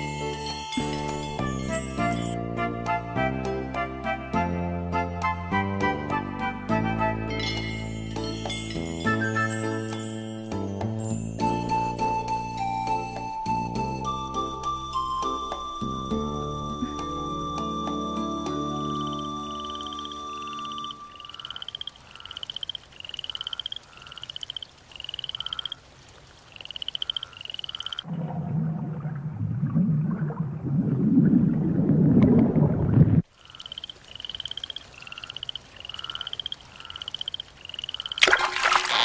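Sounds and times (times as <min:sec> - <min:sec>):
frogs croaking: 0:18.7 - 0:28.1, 0:33.2 - 0:39.0
low underwater rumble: 0:28.1 - 0:33.2.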